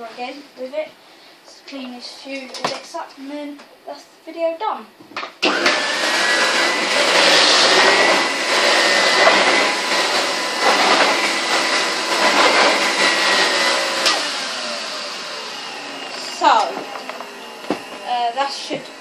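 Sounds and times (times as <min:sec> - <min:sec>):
vacuum cleaner on carpet: 0:05.4 - 0:19.0.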